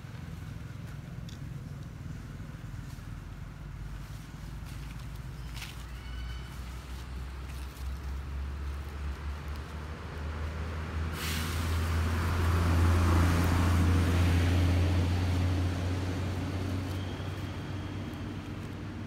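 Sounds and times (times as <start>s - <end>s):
vehicle engine hum: 0.0s - 19.0s
road hiss: 2.0s - 19.0s.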